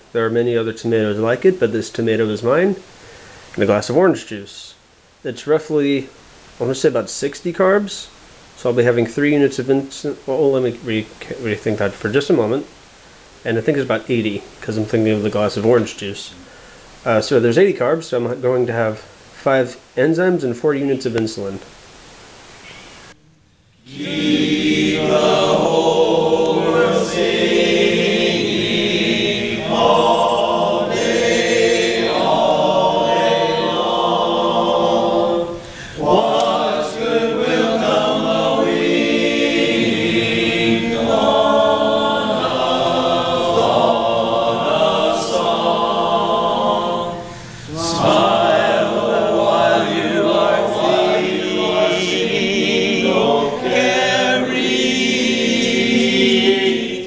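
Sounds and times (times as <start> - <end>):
men singing together: 23.9 - 57.0.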